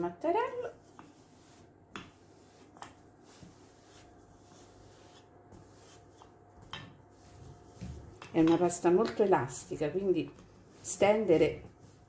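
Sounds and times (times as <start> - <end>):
rolling pin rubbing on dough: 0.0 - 12.0.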